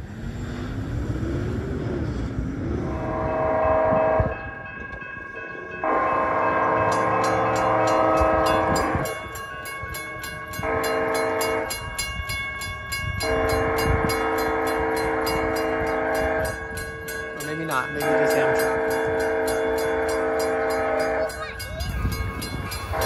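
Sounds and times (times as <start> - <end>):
locomotive air horn blasts: 2.8 - 4.4, 5.8 - 9.1, 10.6 - 11.9, 13.2 - 16.6, 18.0 - 21.4
railroad crossing bell ringing: 2.8 - 23.0.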